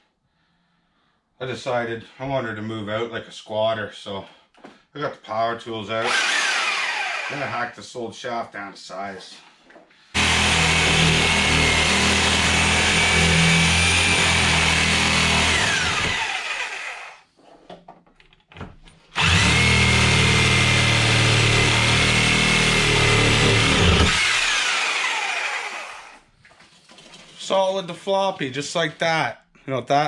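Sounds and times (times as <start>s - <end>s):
reciprocating saw cutting metal: 6.0s - 7.6s, 10.2s - 17.2s, 19.2s - 26.2s.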